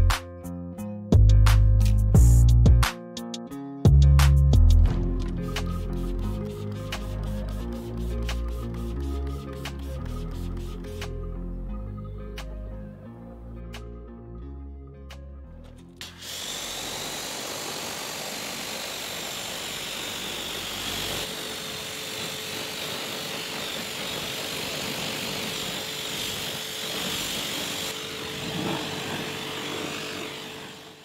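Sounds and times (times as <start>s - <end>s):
music: 0.0s - 16.3s
pressure washer spraying water: 5.5s - 11.0s, 16.0s - 31.0s.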